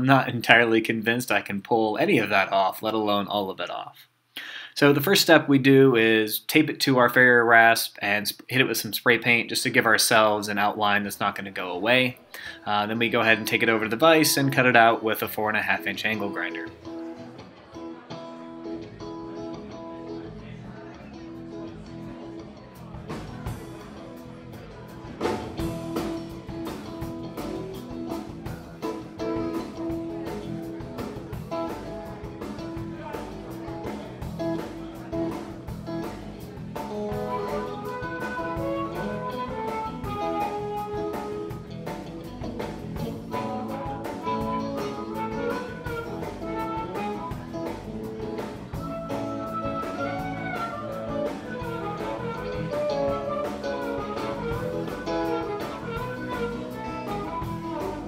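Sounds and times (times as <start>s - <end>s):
instrumental music with steady beat: 22.9s - 58.0s.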